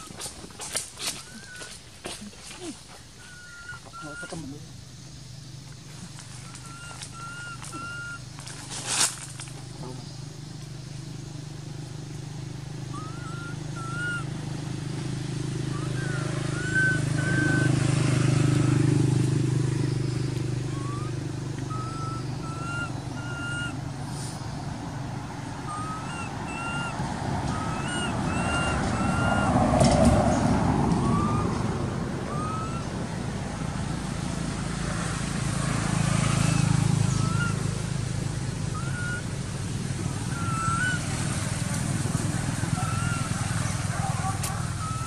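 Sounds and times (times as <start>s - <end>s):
road vehicles passing: 0.0s - 45.0s
bird short rising whistles: 6.5s - 8.2s, 12.9s - 14.2s, 20.7s - 21.1s, 25.7s - 29.5s, 31.0s - 31.6s, 32.3s - 32.9s, 36.5s - 37.6s, 38.8s - 39.2s, 40.3s - 41.0s.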